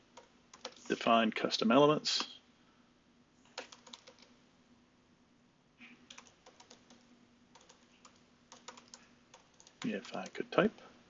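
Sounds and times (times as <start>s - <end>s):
faint keyboard typing: 0.1s - 1.0s, 3.4s - 4.4s, 6.0s - 11.0s.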